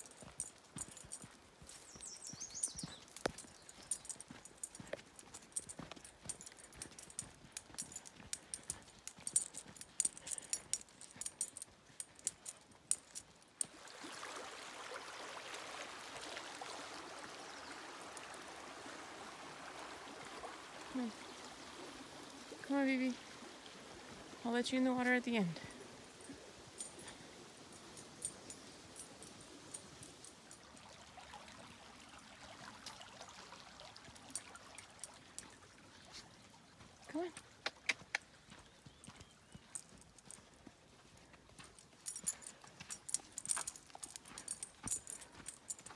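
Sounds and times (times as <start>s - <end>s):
dog collar tags jingling: 0.0s - 13.7s, 25.6s - 30.8s, 38.9s - 45.9s
creek flowing over shallow bed: 0.0s - 45.9s.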